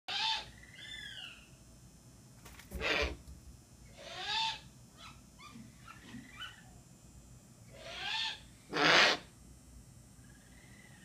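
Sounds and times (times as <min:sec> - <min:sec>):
owl calling: 0:00.1 - 0:01.5, 0:02.7 - 0:03.2, 0:03.9 - 0:06.8, 0:07.7 - 0:09.3, 0:10.2 - 0:11.0.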